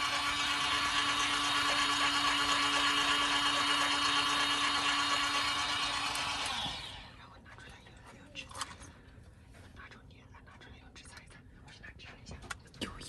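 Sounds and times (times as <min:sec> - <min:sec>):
small electric motor humming: 0:00.0 - 0:07.1.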